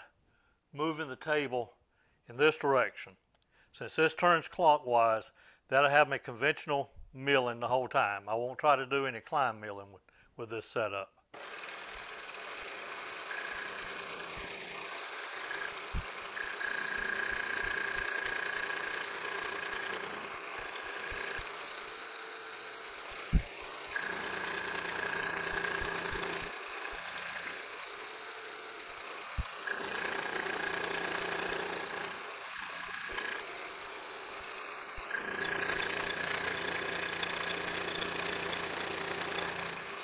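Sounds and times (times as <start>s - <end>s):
milling cutter high whine: 11.4s - 40.0s
milling machine hum: 11.4s - 40.0s.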